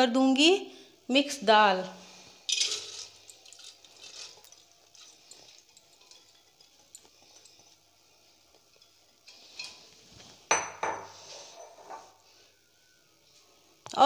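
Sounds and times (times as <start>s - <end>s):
lentils sliding into a pot: 2.0s - 5.7s, 11.1s - 12.2s
glass bowl clacking on counter: 10.5s - 12.0s.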